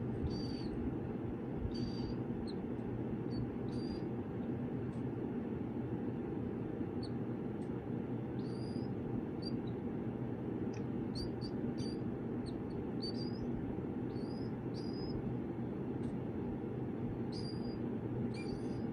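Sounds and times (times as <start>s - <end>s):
steady low hum: 0.0s - 18.9s
chicks peeping: 0.1s - 0.8s, 1.6s - 4.1s, 8.4s - 9.8s, 11.1s - 15.3s, 17.2s - 18.9s.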